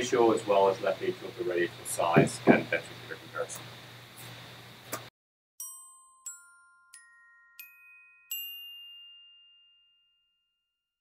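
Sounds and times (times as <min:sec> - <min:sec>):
mallet notes logo jingle: 0:05.6 - 0:10.2.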